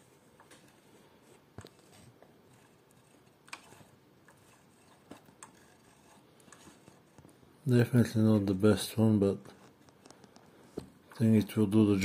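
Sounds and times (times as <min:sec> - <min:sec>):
faint mechanism clicks: 0:02.5 - 0:07.3.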